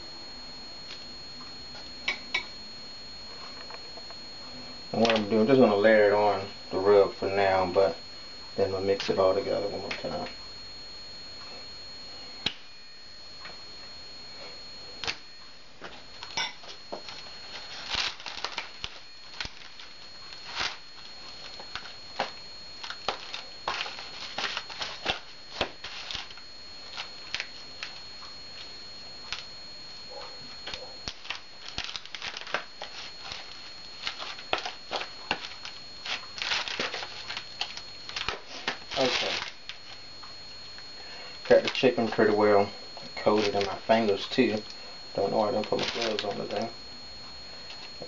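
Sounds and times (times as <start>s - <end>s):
aluminium foil crinkling: 14.9s - 29.5s, 30.1s - 40.8s, 41.4s - 42.4s, 43.0s - 46.9s, 47.5s - 48.0s.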